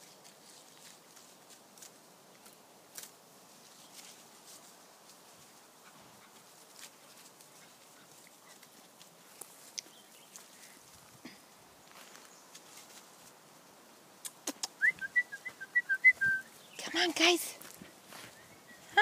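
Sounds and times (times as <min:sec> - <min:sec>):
puppies rustling in leaves: 0:00.0 - 0:13.6.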